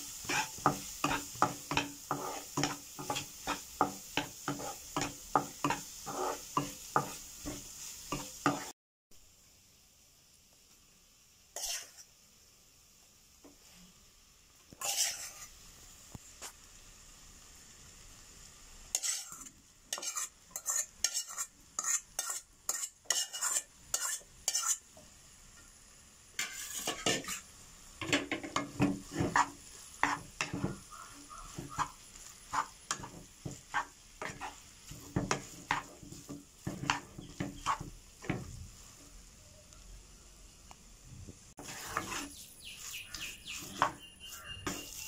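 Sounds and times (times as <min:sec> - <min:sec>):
spatula scraping and knocking pan: 0:00.0 - 0:08.7, 0:11.6 - 0:12.1, 0:14.7 - 0:15.6, 0:18.9 - 0:25.0, 0:26.4 - 0:39.1, 0:41.6 - 0:45.0
faint frying sizzle: 0:00.0 - 0:45.0.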